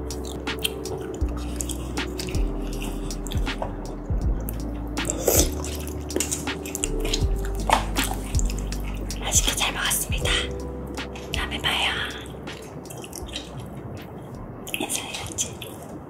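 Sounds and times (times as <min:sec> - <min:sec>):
soft background music: 0:00.0 - 0:16.0
person chewing: 0:00.2 - 0:03.8, 0:04.4 - 0:10.2.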